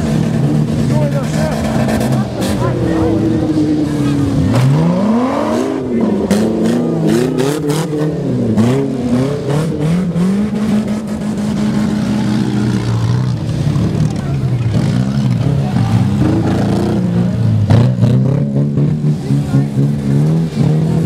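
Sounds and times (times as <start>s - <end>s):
race car engines revving: 0.0s - 21.0s.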